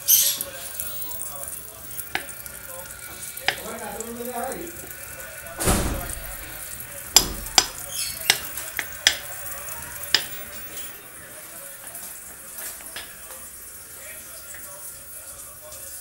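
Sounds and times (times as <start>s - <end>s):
sizzling hiss: 0.0s - 16.0s
popcorn popping: 1.9s - 4.2s, 5.5s - 10.9s.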